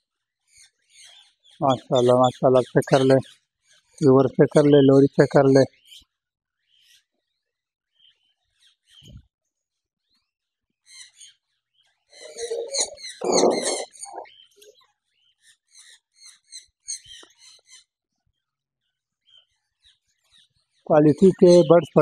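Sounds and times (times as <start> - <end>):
parrots chirping: 12.2 - 14.6.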